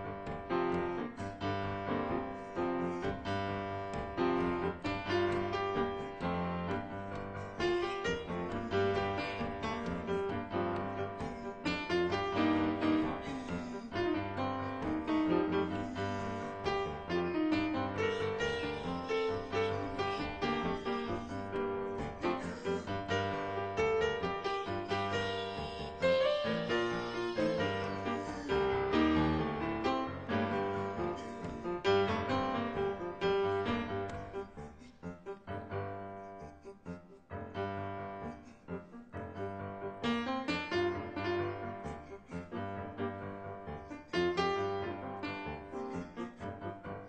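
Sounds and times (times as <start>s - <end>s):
background piano music: 0.0s - 47.0s.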